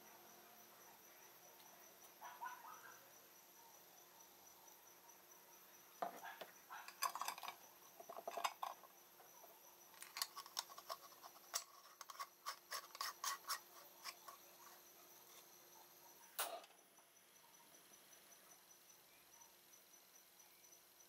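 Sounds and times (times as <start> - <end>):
metal threads scraping: 6.9 - 8.9, 10.0 - 15.6
short clicks and scrapes: 10.0 - 15.5.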